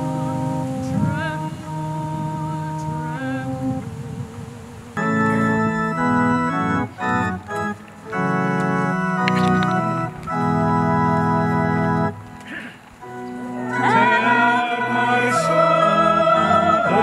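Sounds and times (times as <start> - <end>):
organ playing held chords: 0.0 - 17.0.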